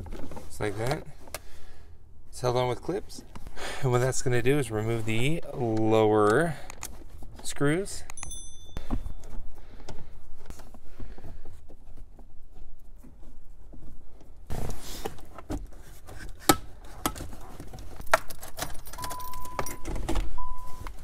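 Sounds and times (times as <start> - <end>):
rustling scrape: 10.3 - 18.0.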